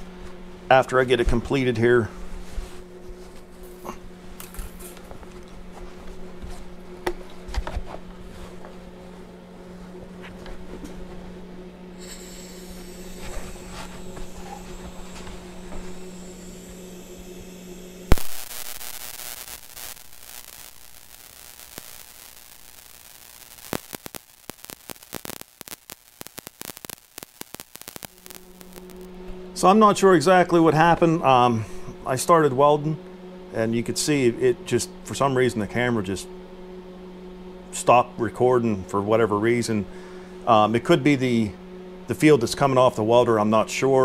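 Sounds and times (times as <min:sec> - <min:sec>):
steady electrical hum: 0:00.0 - 0:44.0
welding arc hissing and crackling: 0:11.9 - 0:29.1
welding arc striking pop: 0:12.0 - 0:29.1.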